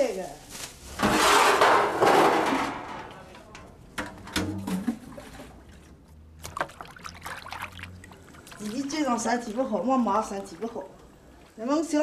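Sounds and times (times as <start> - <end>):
knocks in a basin: 4.0 - 5.1
water splashing in a basin: 4.5 - 11.5.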